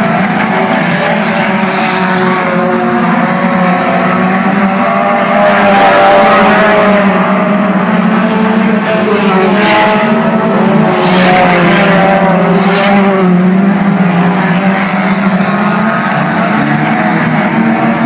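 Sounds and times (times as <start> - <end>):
race car engines droning: 0.0 - 18.0.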